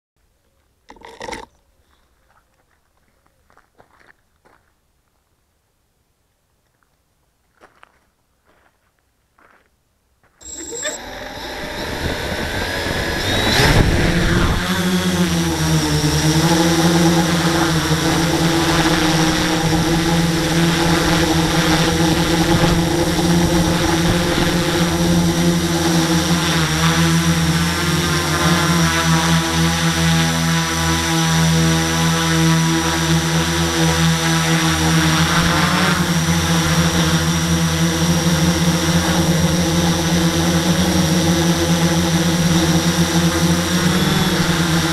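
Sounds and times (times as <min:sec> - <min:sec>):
model aircraft motor whine: 0:10.4 - 0:44.9.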